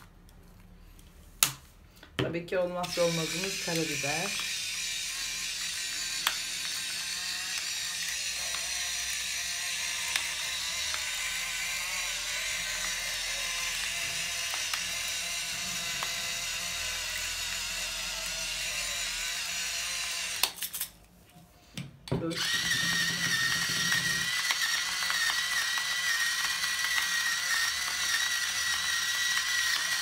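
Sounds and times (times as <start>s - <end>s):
electric pepper mill whirring: 2.6s - 20.7s, 22.3s - 30.0s.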